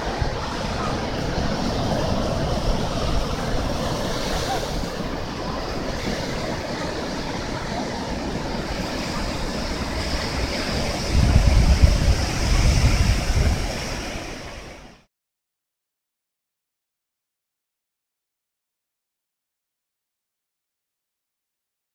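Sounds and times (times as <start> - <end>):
wind buffeting microphone: 0.0 - 15.0
ocean surf breaking on beach: 0.0 - 15.1.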